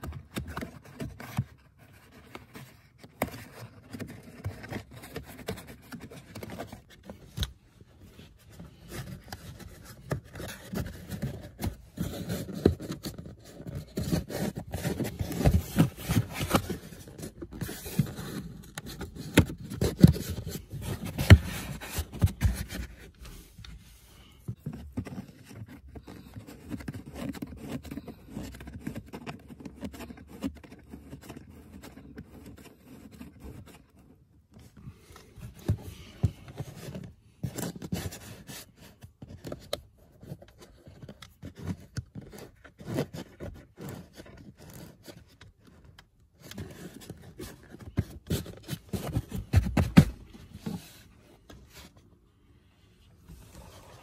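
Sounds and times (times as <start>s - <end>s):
plastic trim scraping and rubbing: 0.0s - 23.8s.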